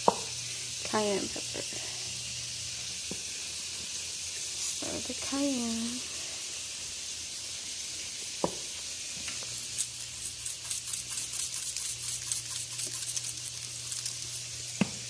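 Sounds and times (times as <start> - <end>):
steady hiss: 0.0 - 15.0
spice shaker rattle: 6.0 - 14.9.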